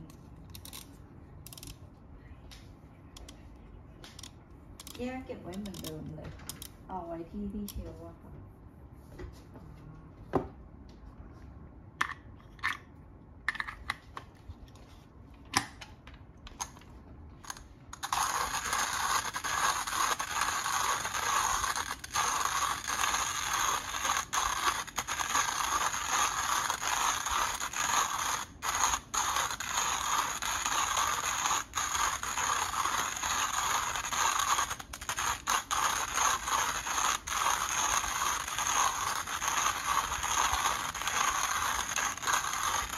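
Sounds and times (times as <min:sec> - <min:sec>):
hand coffee grinder grinding beans: 0:17.4 - 0:42.9.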